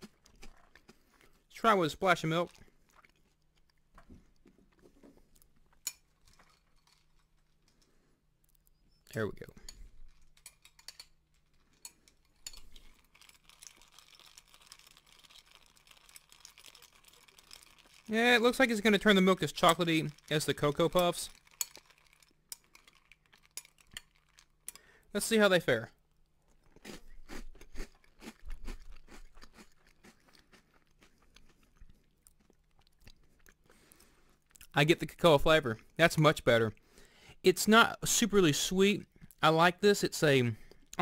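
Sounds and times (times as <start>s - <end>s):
cereal crunching while chewing: 0.0s - 8.7s, 10.1s - 25.4s, 26.1s - 34.7s.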